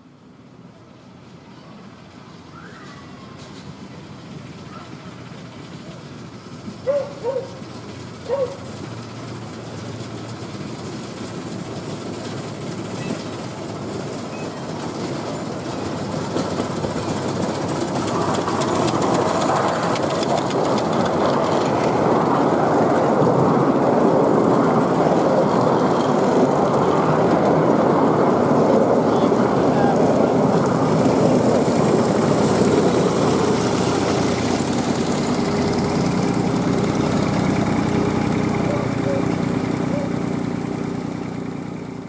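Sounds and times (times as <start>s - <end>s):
train wheels rumbling on rails: 0.0s - 42.0s.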